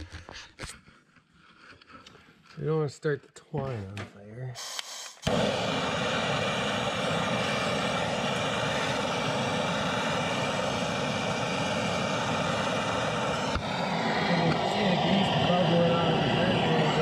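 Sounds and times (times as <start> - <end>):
torch trigger igniter click: 4.6 - 13.7
gas torch flame hissing: 4.6 - 17.0.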